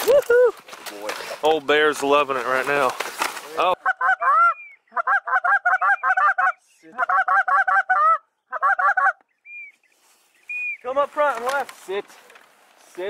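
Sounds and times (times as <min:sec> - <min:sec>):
duck quacking: 0:03.7 - 0:09.2
high whistle: 0:10.5 - 0:10.8.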